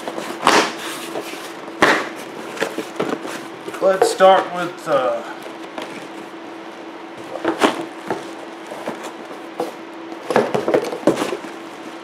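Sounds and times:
steady low hum: 0.0 - 12.0
sharp cardboard knocks: 1.8 - 2.1.

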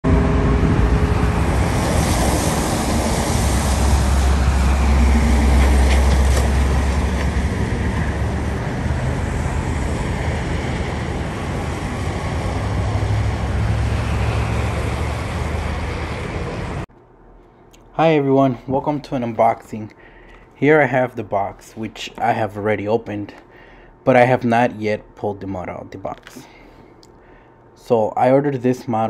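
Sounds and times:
jet engine rumble and hiss: 0.1 - 16.9.

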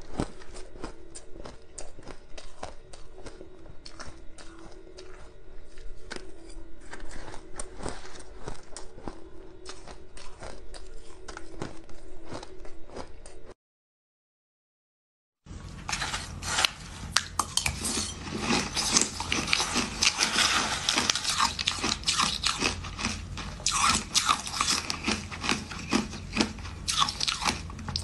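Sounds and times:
ice crunching while chewed: 0.0 - 13.6, 15.7 - 28.0
faint steady hum: 15.5 - 28.0.

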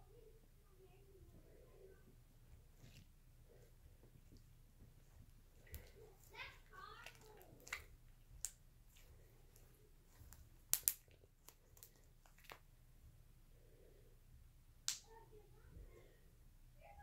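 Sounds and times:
slime clicking and popping: 7.0 - 9.6, 10.2 - 12.6.

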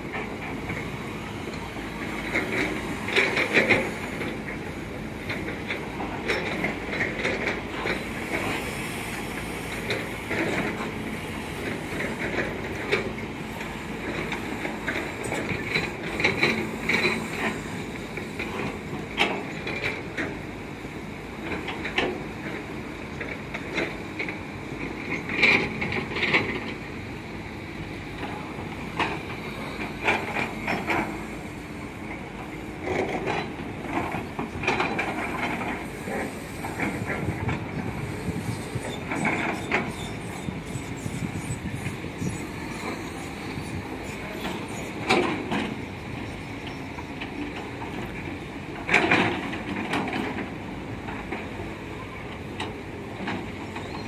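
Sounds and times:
excavator engines running: 0.0 - 54.0
metallic clanks and squeals: 38.2 - 47.1, 53.7 - 54.0.

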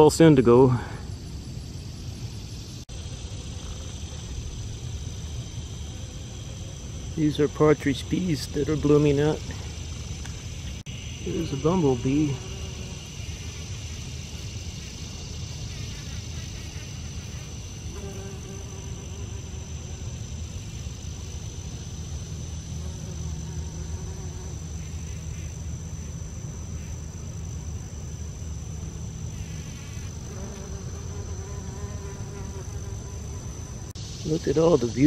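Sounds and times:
high-pitched insect drone: 0.2 - 35.0
bumblebee buzzing: 9.8 - 34.0.

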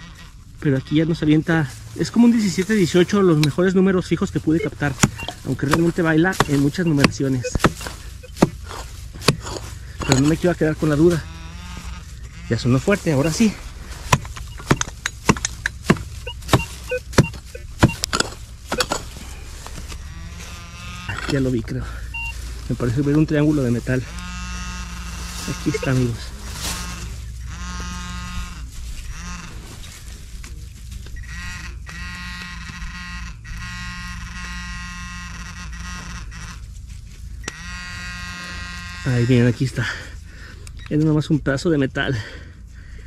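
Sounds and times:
metal detector beeps: 4.2 - 11.2, 12.7 - 13.6, 14.3 - 19.5, 21.0 - 23.0, 25.4 - 26.3, 31.2 - 32.2, 37.4 - 38.6
digging tool chopping dirt: 4.6 - 10.5, 13.2 - 19.2.

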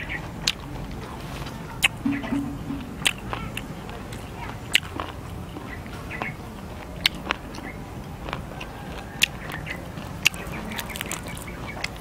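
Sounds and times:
dry crackles of crickets breaking: 10.3 - 12.0.

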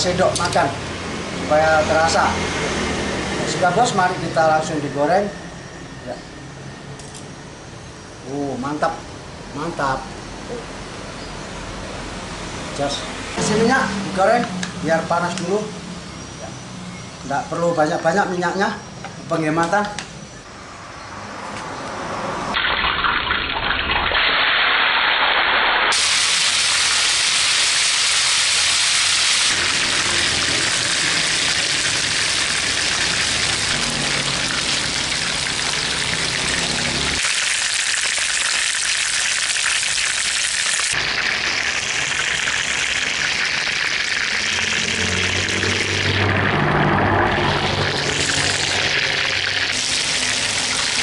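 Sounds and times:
chicken sizzling in hot oil: 22.5 - 51.0.

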